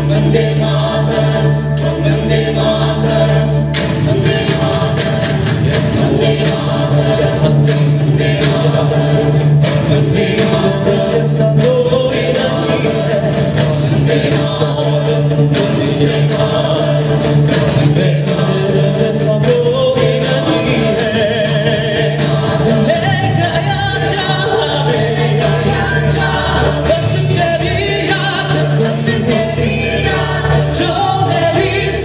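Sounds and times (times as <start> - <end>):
mixed choir singing in harmony: 0.0 - 32.0.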